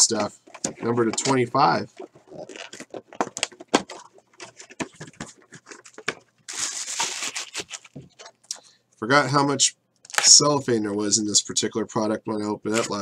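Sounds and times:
cellophane crinkling: 0:00.1 - 0:08.4
card packs clicking and rustling: 0:00.2 - 0:08.3.

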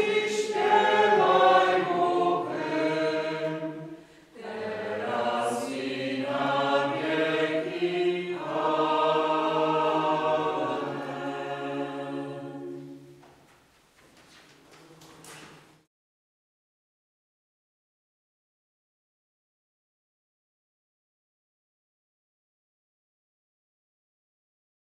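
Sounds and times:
choir singing long notes: 0:00.0 - 0:13.3.

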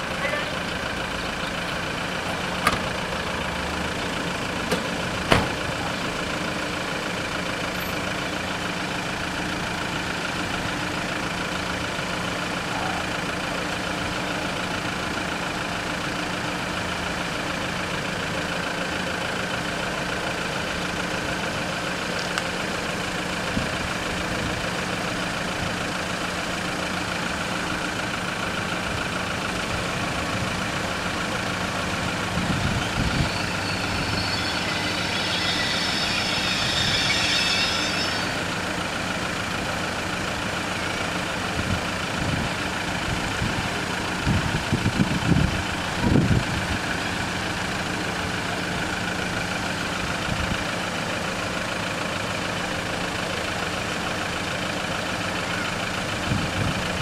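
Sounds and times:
car engines idling: 0:00.0 - 0:57.0
car door shutting: 0:02.6 - 0:03.0, 0:04.7 - 0:05.8.

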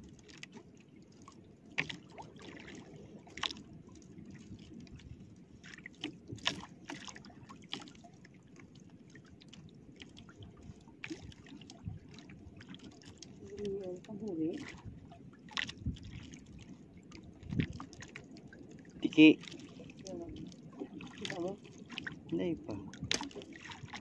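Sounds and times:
water lapping against boat hull: 0:00.0 - 0:24.0
sharp water slaps: 0:23.1 - 0:23.8.

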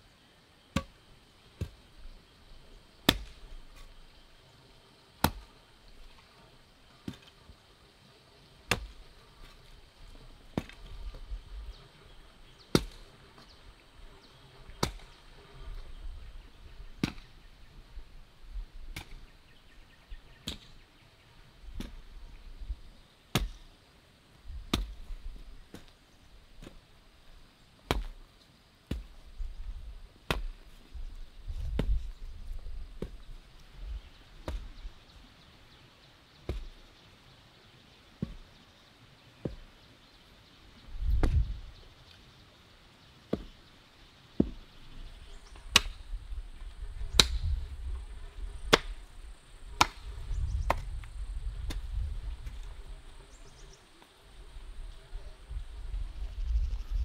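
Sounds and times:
hoe chopping into soil: 0:00.7 - 0:01.0, 0:03.0 - 0:03.9, 0:05.2 - 0:05.5, 0:08.7 - 0:09.0, 0:10.6 - 0:10.9, 0:12.7 - 0:13.1, 0:14.8 - 0:15.2, 0:17.0 - 0:17.4, 0:18.9 - 0:19.3, 0:20.4 - 0:20.8, 0:21.8 - 0:22.1, 0:23.3 - 0:23.7, 0:24.7 - 0:25.1, 0:26.6 - 0:26.8, 0:27.8 - 0:28.2, 0:28.9 - 0:29.2, 0:30.2 - 0:30.8, 0:31.6 - 0:32.1, 0:33.0 - 0:33.2, 0:34.4 - 0:34.8, 0:36.4 - 0:36.8, 0:38.2 - 0:38.5, 0:41.1 - 0:41.5, 0:43.3 - 0:43.6, 0:45.6 - 0:46.0, 0:47.1 - 0:47.6, 0:48.6 - 0:49.0, 0:49.7 - 0:51.0, 0:51.6 - 0:52.7.

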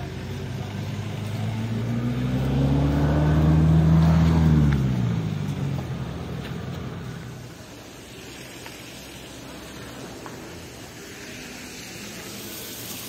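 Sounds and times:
vehicle engine passing by: 0:00.0 - 0:07.6.

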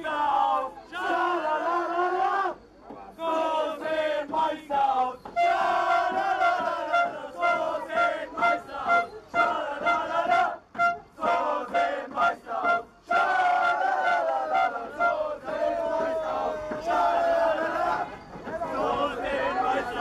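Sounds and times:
men chanting in unison: 0:00.0 - 0:20.0
men shouting: 0:11.2 - 0:20.0.

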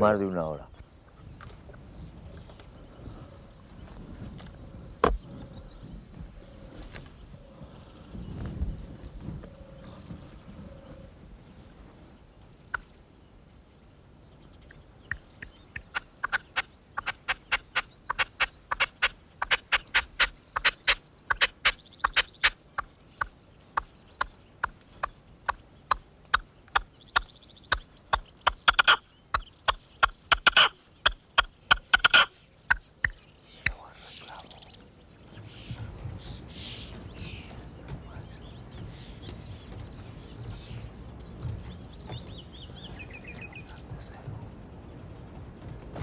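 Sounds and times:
partridge calling harsh notes: 0:15.1 - 0:34.6.

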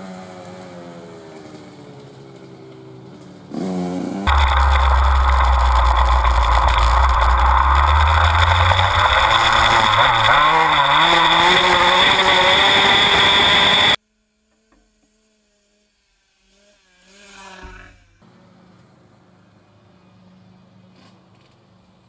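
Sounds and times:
dirt bike engine revving: 0:04.3 - 0:14.0
wind rush: 0:04.3 - 0:14.0.

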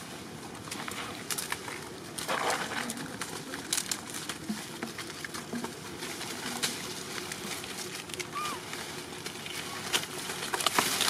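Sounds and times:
rustling in dry leaves: 0:00.0 - 0:11.0
low animal calls: 0:08.2 - 0:08.7.

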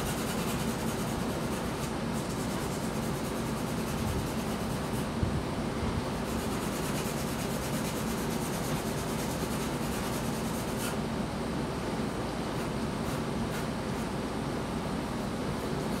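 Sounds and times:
pencil rubbing on paper: 0:00.0 - 0:05.1, 0:06.2 - 0:11.0
steady low hum: 0:00.0 - 0:16.0.

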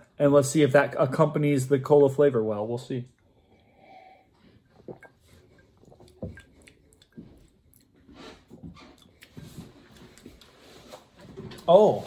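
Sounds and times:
person sipping and swallowing: 0:03.2 - 0:10.6
lip and tongue clicks: 0:04.8 - 0:10.5.

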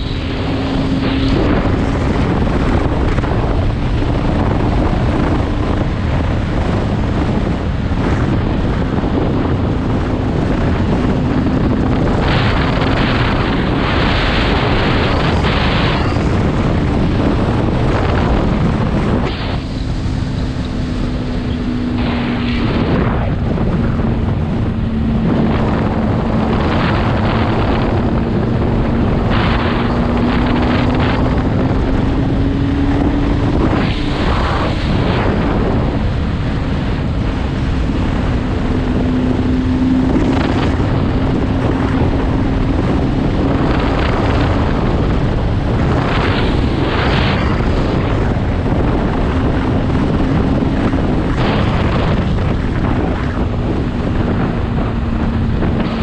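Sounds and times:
motorcycle engine cruising: 0:00.0 - 0:56.0
wind rush on microphone: 0:00.0 - 0:56.0.

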